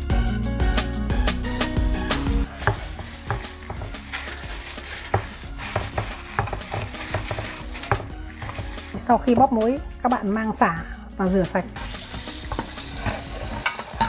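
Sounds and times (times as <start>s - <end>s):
background music: 0.0s - 14.0s
salt pouring onto meat: 2.5s - 9.0s, 11.8s - 13.6s.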